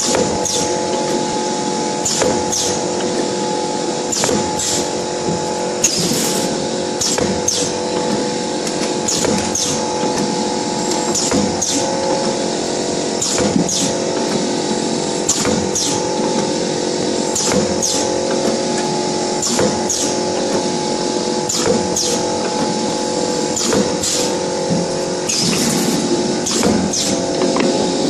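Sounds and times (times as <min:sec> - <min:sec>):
machine motor hum with tones: 0:00.0 - 0:28.0.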